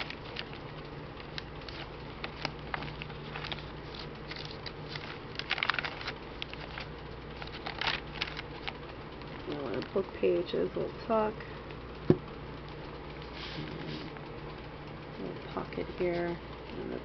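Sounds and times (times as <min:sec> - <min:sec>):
paper pages rustling: 0:00.0 - 0:08.8
steady low hum: 0:00.0 - 0:17.0.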